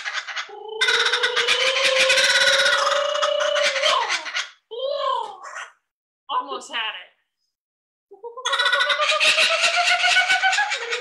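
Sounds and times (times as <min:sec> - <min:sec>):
kookaburra laughing call: 0:00.0 - 0:04.6, 0:08.2 - 0:11.0.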